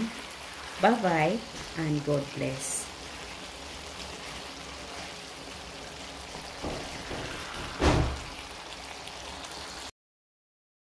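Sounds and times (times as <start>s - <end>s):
stew simmering and bubbling: 0.0s - 9.9s
wooden spoon knocking against pan: 6.5s - 7.9s.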